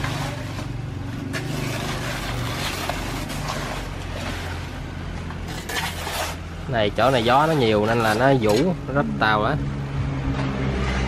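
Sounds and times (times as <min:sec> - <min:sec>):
banana leaves rustling and scraping: 0:00.0 - 0:08.9
low motor drone: 0:08.8 - 0:11.0.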